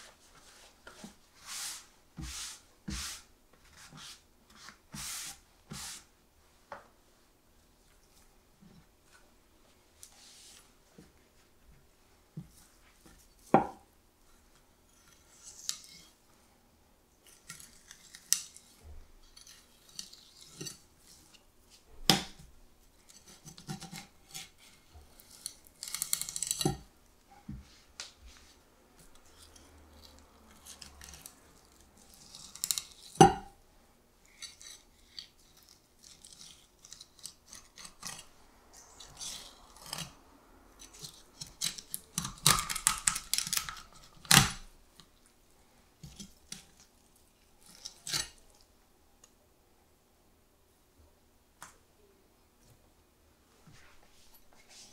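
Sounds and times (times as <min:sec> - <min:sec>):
knife scraping and slicing fish: 0:34.3 - 0:38.3, 0:39.0 - 0:40.2, 0:47.6 - 0:48.4.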